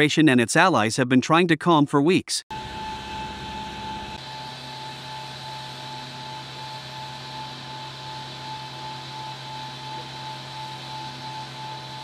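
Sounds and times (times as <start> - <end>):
low hum: 2.5 - 5.2
constant high whine: 2.5 - 12.0.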